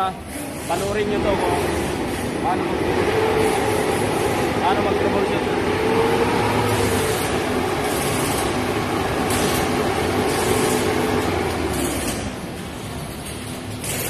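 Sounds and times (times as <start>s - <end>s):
air-conditioning running: 0.0s - 14.0s
vehicle engine revving: 1.3s - 12.4s.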